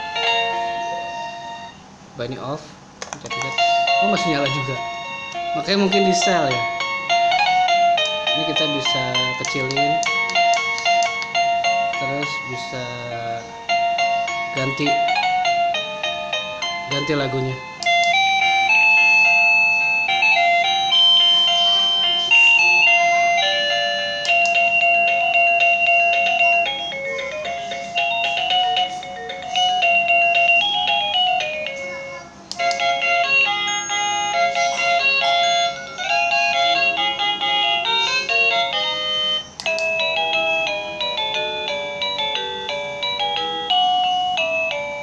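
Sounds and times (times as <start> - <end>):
electronic doorbell chime melody: 0.0 - 1.9, 3.3 - 45.0.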